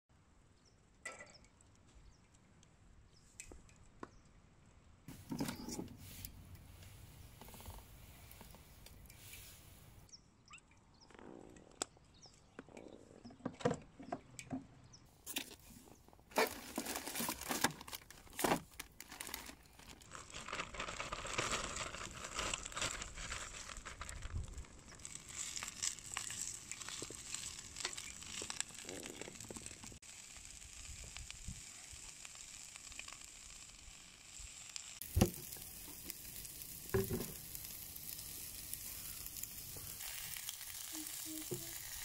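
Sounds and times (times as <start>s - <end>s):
plastic packaging crinkling: 15.3s - 30.0s, 35.0s - 42.0s
cabbage sizzling in a pan: 24.9s - 42.0s.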